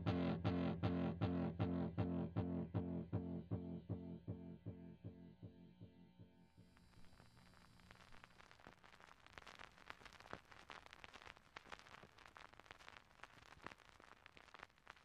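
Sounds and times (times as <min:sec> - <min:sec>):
faint irregular crackle: 0:06.5 - 0:15.0.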